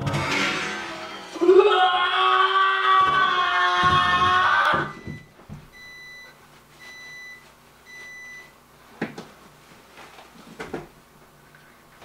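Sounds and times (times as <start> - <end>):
microwave oven beeping: 4.6 - 8.7.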